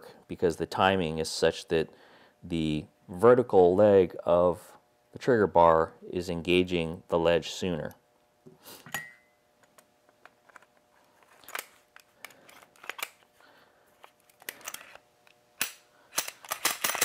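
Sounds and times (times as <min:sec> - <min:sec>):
pistol metal clicks and clacks: 0:15.6 - 0:17.0
sharp metal snaps: 0:15.6 - 0:17.0.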